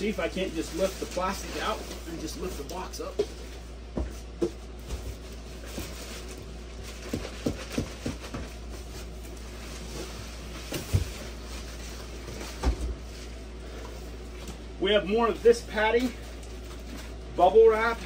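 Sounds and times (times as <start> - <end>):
plastic bag rustling and crinkling: 0.0 - 3.2, 4.7 - 14.4.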